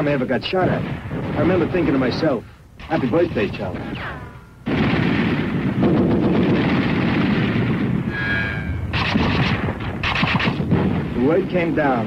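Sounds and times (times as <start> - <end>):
deep rumble: 2.9 - 11.5
small-arms gunfire: 4.7 - 8.0, 8.9 - 11.0
high ringing tone: 8.1 - 10.1
sharp gunshot cracks: 8.9 - 11.1.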